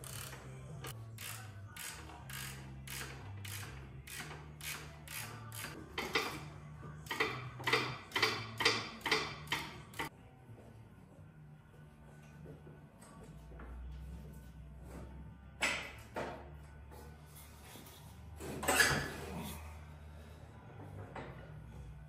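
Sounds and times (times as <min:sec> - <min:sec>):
low bass line music: 0:00.0 - 0:22.0
ratchet wrench clicking: 0:01.2 - 0:06.4, 0:07.0 - 0:10.1.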